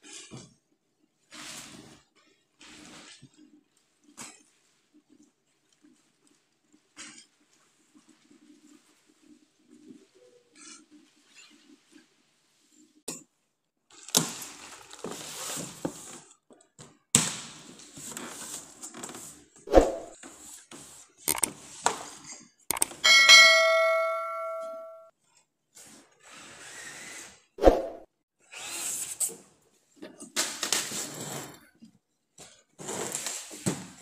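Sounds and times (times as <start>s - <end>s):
cardboard and plastic wrap rustling: 14.0s - 16.4s, 32.8s - 34.0s
metal chair frame clanging: 22.7s - 25.0s.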